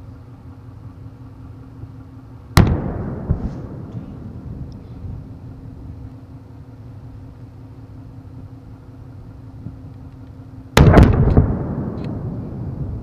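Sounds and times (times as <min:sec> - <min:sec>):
rumble: 0:00.0 - 0:13.0
explosion boom: 0:02.6 - 0:05.3
sharp cracks: 0:10.8 - 0:12.5.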